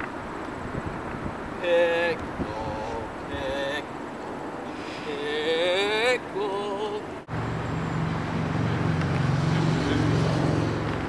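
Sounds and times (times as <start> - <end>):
vehicle engine humming: 0.0 - 11.0
rising wordless vocal tone: 1.6 - 7.3.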